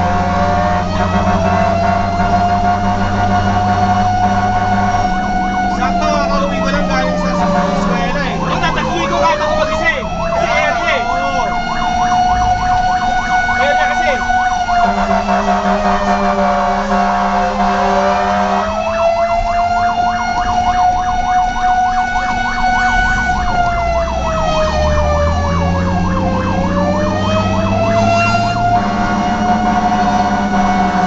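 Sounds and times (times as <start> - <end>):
fast yelping siren: 0.0 - 31.0
truck engine rumbling: 0.0 - 31.0
wailing siren: 0.0 - 31.0.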